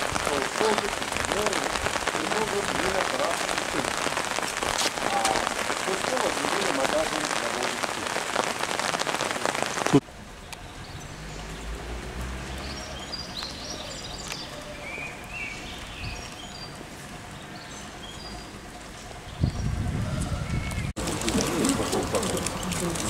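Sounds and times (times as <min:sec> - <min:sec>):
rain pattering: 0:00.0 - 0:23.0
small birds chirping: 0:05.0 - 0:23.0.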